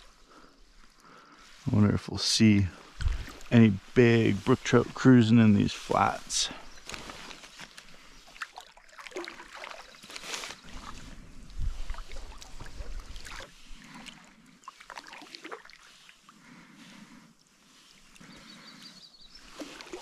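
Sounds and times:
paddle splashing water: 2.8 - 5.1, 6.9 - 20.0.

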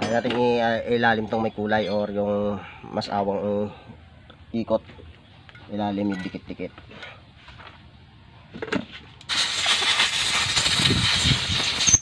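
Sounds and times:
light click of handled parts: 5.4 - 7.8
pressurised nozzle hissing: 9.3 - 12.0.

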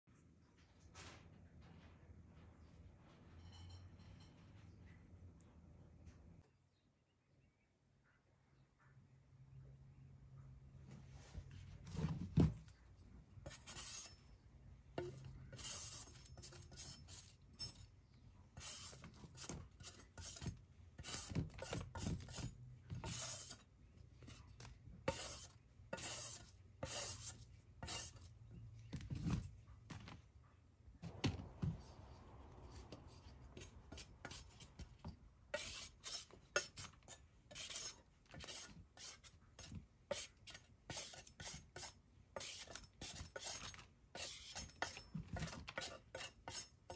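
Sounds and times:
peeler scraping vegetable peel: 13.4 - 14.2, 15.0 - 17.9, 18.5 - 28.4, 32.6 - 46.9.

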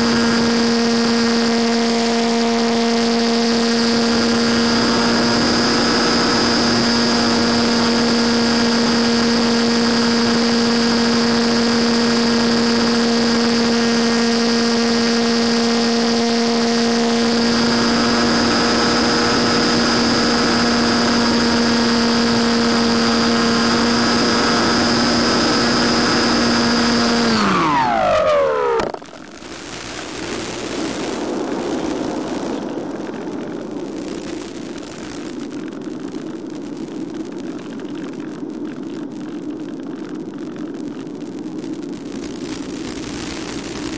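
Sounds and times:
electric motor and propeller whine: 0.0 - 37.3, 41.6 - 43.9.

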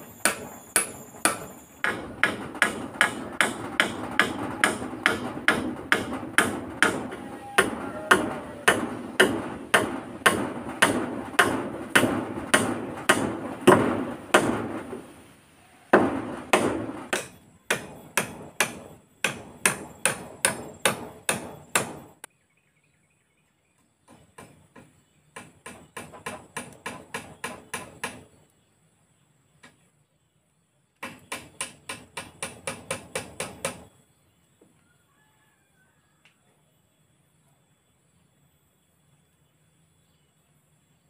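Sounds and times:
hammer striking wooden beams: 0.0 - 15.2, 15.9 - 22.3, 24.1 - 28.3, 31.0 - 33.9.

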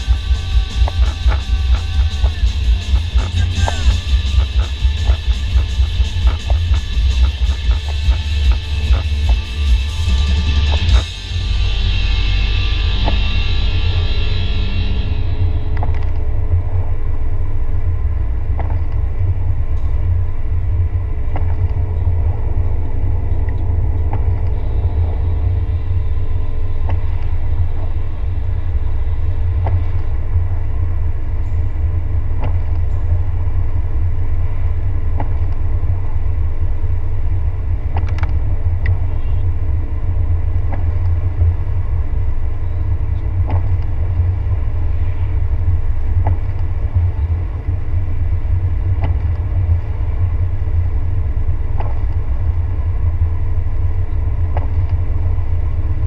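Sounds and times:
windshield wipers ticking: 0.0 - 11.1
road and engine rumble: 0.0 - 56.0.

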